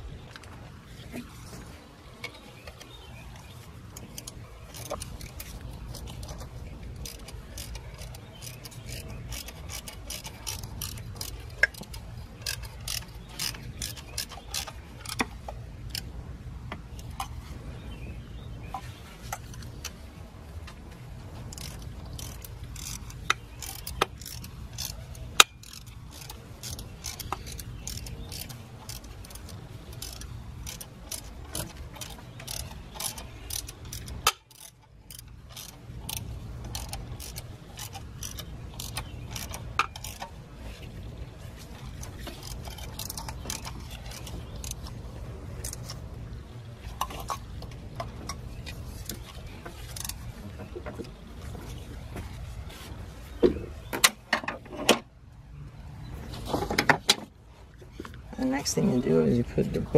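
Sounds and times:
ratchet wrench clicking: 0:07.0 - 0:15.3, 0:21.5 - 0:40.2.

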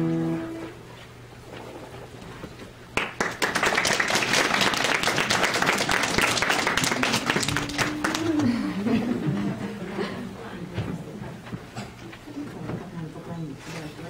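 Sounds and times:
audience applause: 0:03.0 - 0:09.0.

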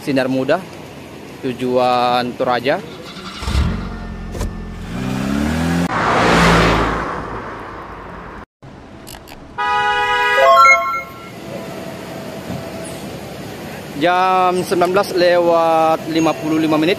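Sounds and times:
engine revving: 0:03.0 - 0:07.1
multi-tone bus horn: 0:09.6 - 0:11.8.

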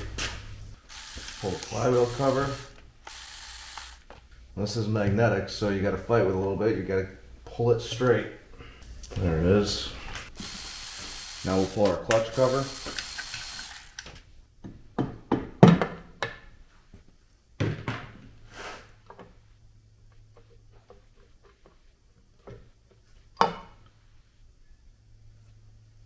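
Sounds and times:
cordless ratchet whirring: 0:00.9 - 0:04.0, 0:10.4 - 0:14.0.

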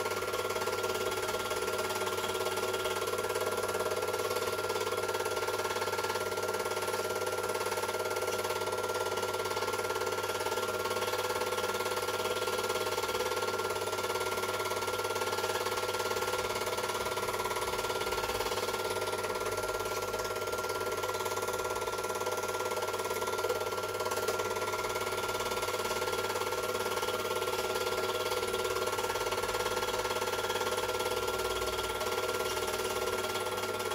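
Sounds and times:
film projector whirring: 0:00.0 - 0:33.9.

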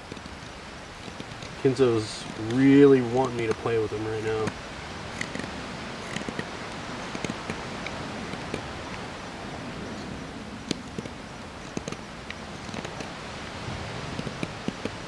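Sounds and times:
steady outdoor hiss: 0:00.0 - 0:15.0
knife scraping wood: 0:04.4 - 0:09.0, 0:10.7 - 0:13.2.

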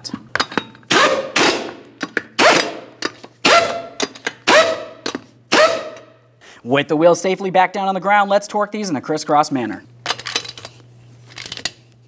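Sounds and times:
impact gun bursts: 0:00.9 - 0:06.0.

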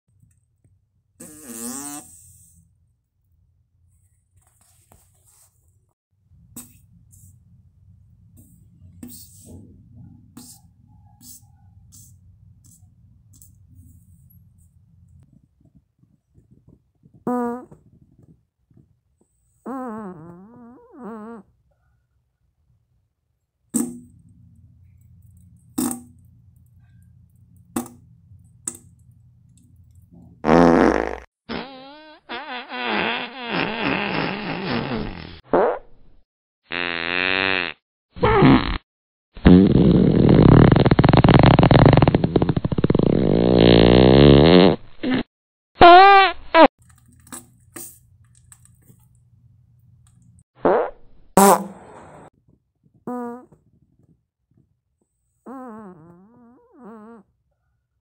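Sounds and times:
fart sound effects: 0:01.2 - 0:02.5, 0:17.3 - 0:18.0, 0:19.7 - 0:21.5, 0:30.4 - 0:35.9, 0:36.7 - 0:38.8, 0:39.4 - 0:46.7, 0:50.6 - 0:52.3, 0:53.1 - 0:53.7, 0:55.5 - 0:57.3.

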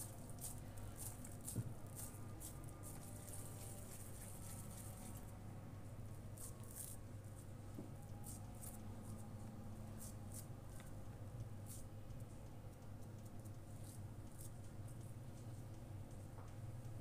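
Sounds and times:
hands squishing and patting patties: 0:00.0 - 0:05.4
steady low hum: 0:00.0 - 0:17.0.

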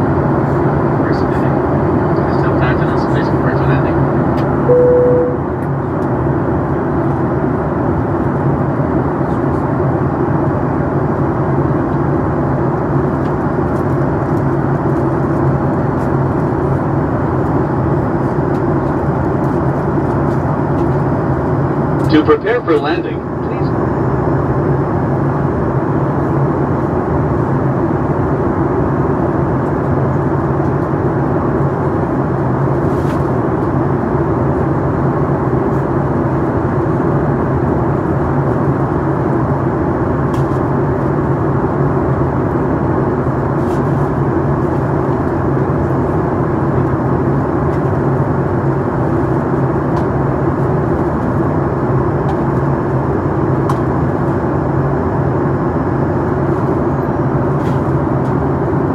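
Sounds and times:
airplane cabin engine drone: 0:00.0 - 0:58.9.

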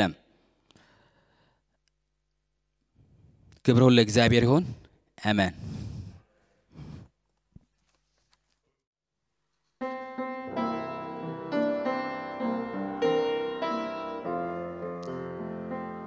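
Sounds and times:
piano playing sustained chords: 0:09.8 - 0:16.0.

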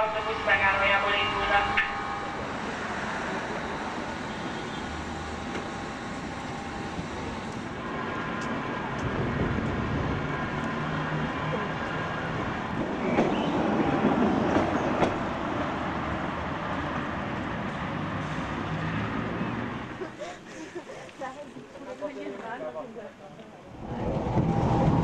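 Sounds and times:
train wheels clattering on rails: 0:12.7 - 0:15.3.

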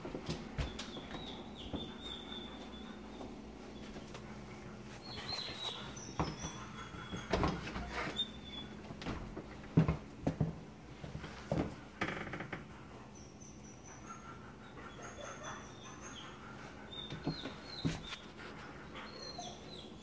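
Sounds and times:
dog whining: 0:05.1 - 0:08.9, 0:13.1 - 0:20.0.

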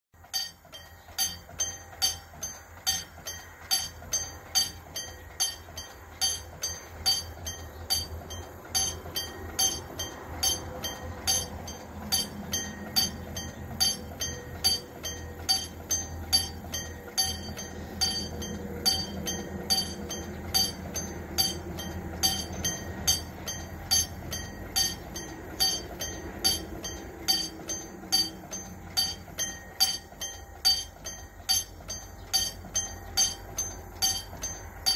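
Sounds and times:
level-crossing warning bell: 0:00.2 - 0:34.9.

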